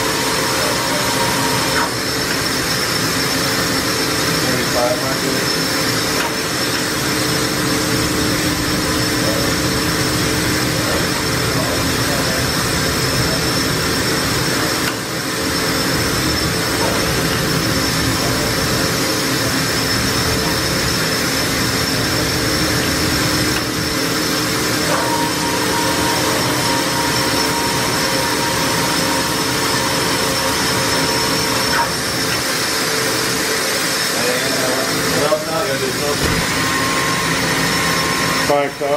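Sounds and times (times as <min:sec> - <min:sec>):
machine spindle whining: 0:00.0 - 0:38.9.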